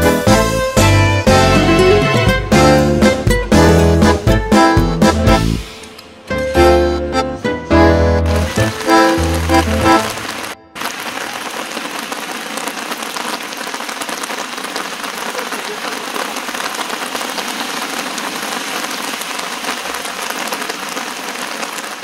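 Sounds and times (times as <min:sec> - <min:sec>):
heavy rain on paving and decking: 0:08.2 - 0:22.0.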